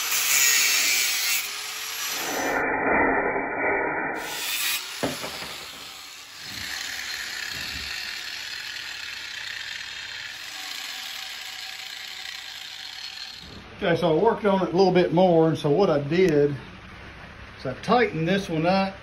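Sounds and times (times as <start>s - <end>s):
angle grinder cutting steel: 0.0s - 3.0s, 4.2s - 13.5s
knock: 5.0s - 5.8s.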